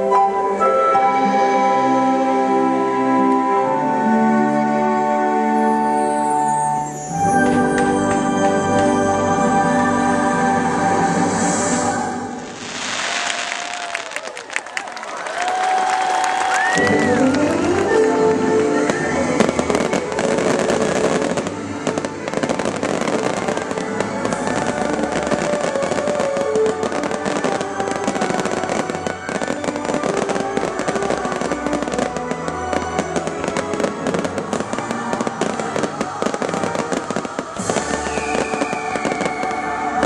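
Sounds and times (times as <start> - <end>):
music playing: 0.0 - 12.8, 16.6 - 40.0
fireworks bursting: 10.8 - 14.4, 16.5 - 40.0.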